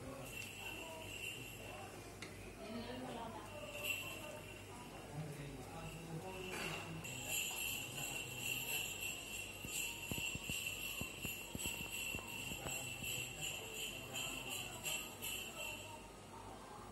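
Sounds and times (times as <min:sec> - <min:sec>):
jingle bells shaking: 0:00.0 - 0:01.9, 0:03.4 - 0:16.0
steady high ring: 0:05.8 - 0:16.0.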